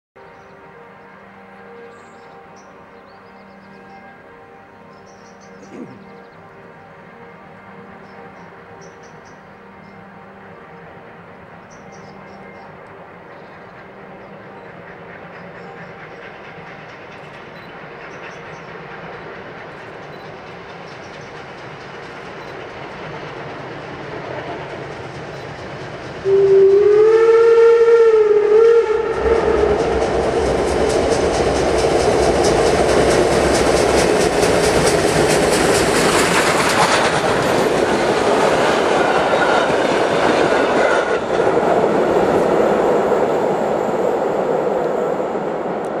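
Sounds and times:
steam locomotive working: 0.2 - 46.0
steam whistle: 26.2 - 30.3.

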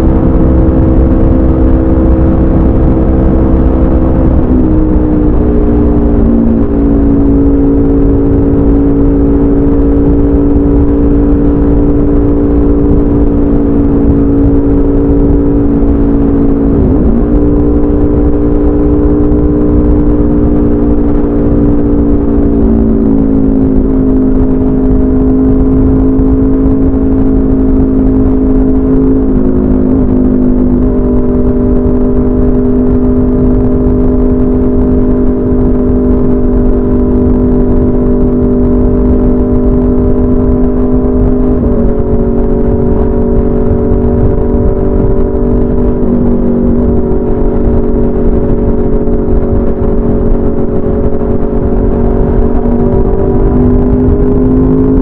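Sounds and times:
motorcycle engine running: 0.0 - 55.0
wind rush: 0.0 - 55.0.

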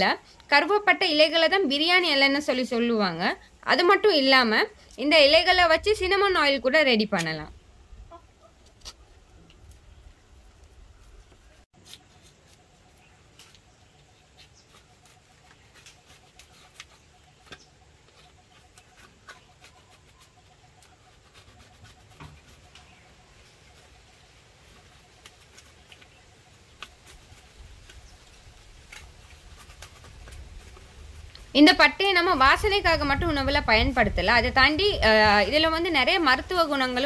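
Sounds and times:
faint bird calls: 8.0 - 29.3
knife clicking and scraping bark: 8.6 - 9.8, 11.4 - 31.5.

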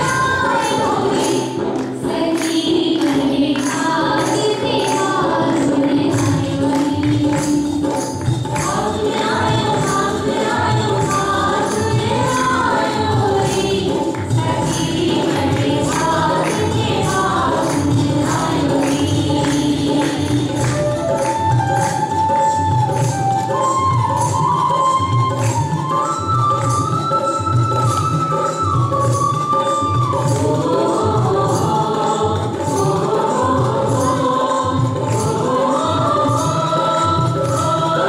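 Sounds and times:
group singing: 0.0 - 22.5, 29.6 - 38.0
steady drum beat: 0.0 - 23.3
jingling percussion: 0.0 - 38.0.

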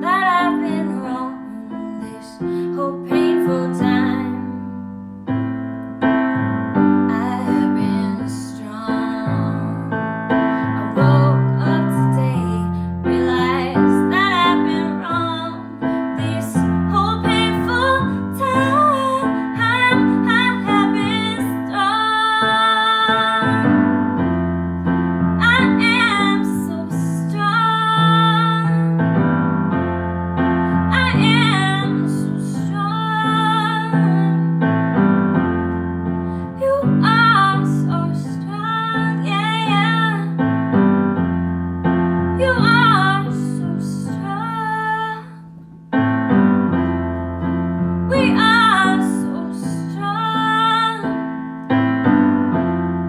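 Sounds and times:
woman singing a pop ballad: 0.0 - 4.8, 6.8 - 23.9, 25.4 - 29.4, 30.7 - 34.6, 36.4 - 40.6, 42.3 - 45.5, 48.1 - 51.3
keyboard piano chords: 0.0 - 53.0.

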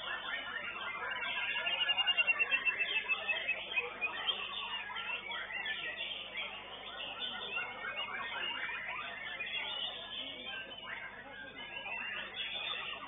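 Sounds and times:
birds singing chirps and whistles: 0.0 - 13.0.

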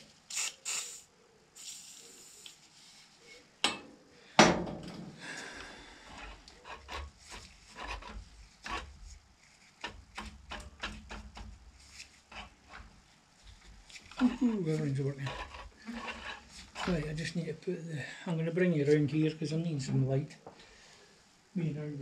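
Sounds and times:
metallic clicks knocks and scraping: 6.1 - 9.0, 9.8 - 11.7, 12.3 - 13.0.

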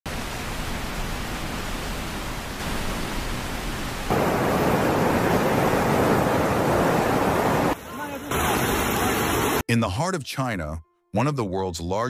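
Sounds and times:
floodwater rushing: 0.1 - 9.6.

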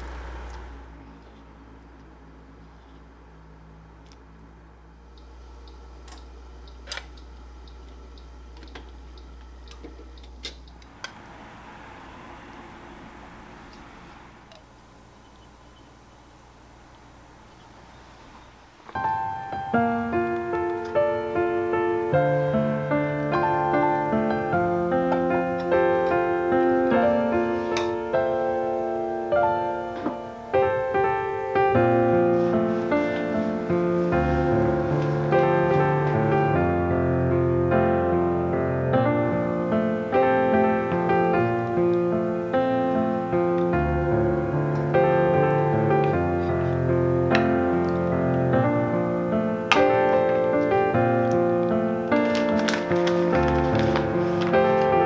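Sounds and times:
steady low hum: 0.0 - 52.2
piano music: 18.4 - 55.0.

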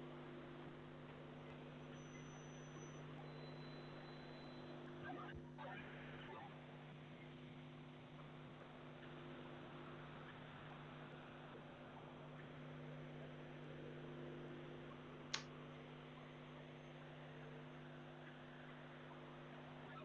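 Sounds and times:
low electrical hum: 0.0 - 20.0
sharp click: 15.3 - 15.5.

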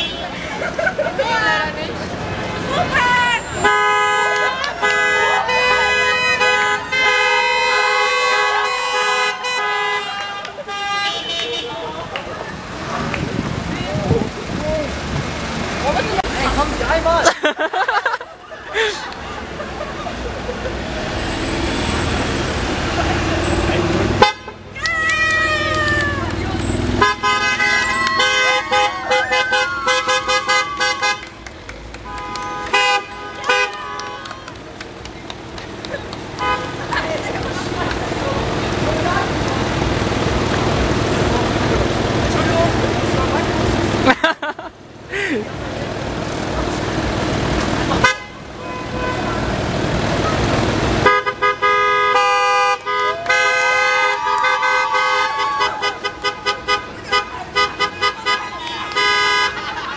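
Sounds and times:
car horns honking: 0.0 - 0.4, 2.9 - 12.2, 23.2 - 24.7, 26.4 - 31.4, 32.0 - 34.5, 36.4 - 37.0, 47.9 - 49.9, 50.9 - 59.9
voices: 0.0 - 20.8, 22.6 - 48.3, 52.9 - 59.9
rushing traffic noise: 0.0 - 59.9
people shouting: 2.7 - 7.1, 24.7 - 26.5, 27.3 - 31.2, 53.0 - 59.2.

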